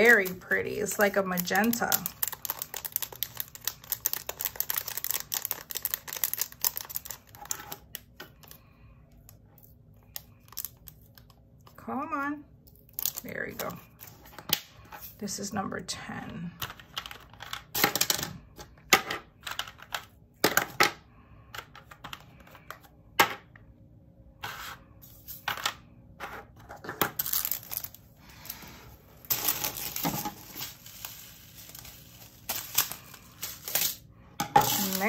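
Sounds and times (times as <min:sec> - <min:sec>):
resin beads rattling in plastic containers: 0:00.0 - 0:08.4, 0:29.2 - 0:34.0, 0:34.6 - 0:35.0
plastic bag handled: 0:27.2 - 0:35.0.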